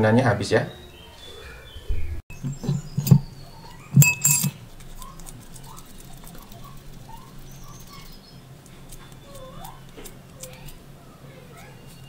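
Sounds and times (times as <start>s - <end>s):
metal spoon clinking glass bowl: 3.9s - 4.6s.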